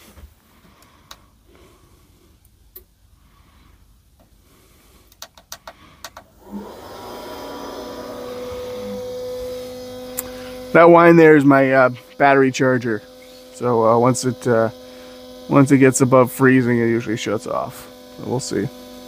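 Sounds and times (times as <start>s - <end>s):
heater humming: 0.0s - 19.0s
battery charger whine: 4.5s - 19.0s.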